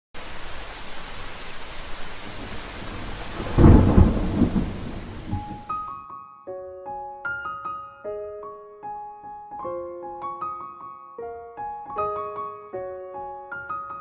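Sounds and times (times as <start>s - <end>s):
steady rain: 0.2s - 5.9s
thunder rolling: 2.1s - 5.7s
piano notes: 3.4s - 14.0s.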